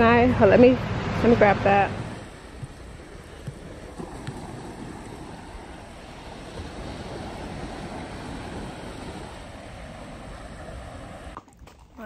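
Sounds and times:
ocean surf: 0:00.0 - 0:12.0
wind buffeting microphone: 0:00.0 - 0:12.0.

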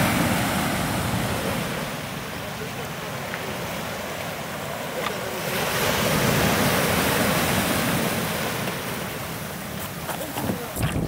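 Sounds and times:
sea waves breaking on stones: 0:02.9 - 0:11.0.

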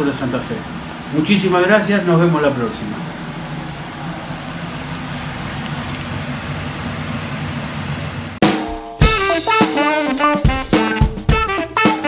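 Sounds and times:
steady hum and hiss: 0:00.0 - 0:11.8
music with a steady beat: 0:08.4 - 0:12.0.

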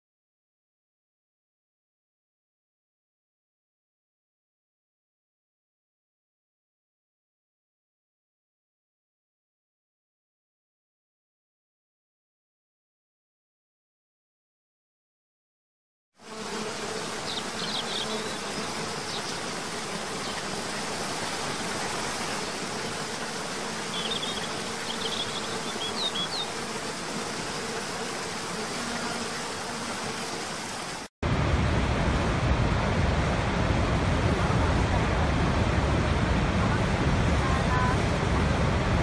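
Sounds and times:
insects buzzing: 0:16.2 - 0:31.1
bird chirps: 0:17.3 - 0:19.4, 0:23.9 - 0:26.5
waterfall rushing: 0:30.3 - 0:39.0.

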